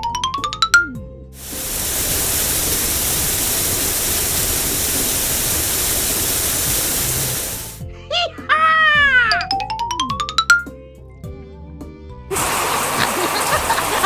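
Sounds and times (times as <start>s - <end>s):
shower spray hissing water: 1.4s - 7.8s, 12.3s - 14.0s.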